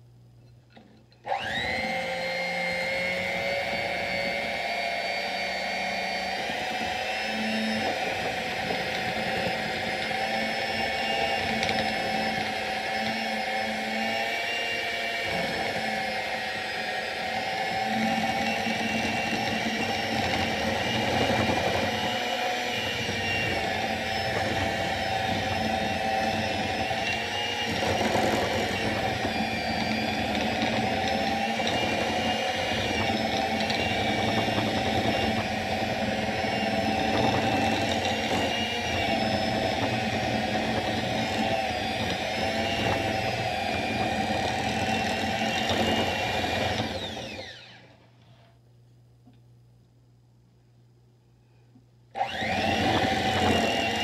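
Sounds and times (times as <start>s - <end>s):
electric hand mixer running: 1.2s - 48.0s, 52.2s - 54.0s.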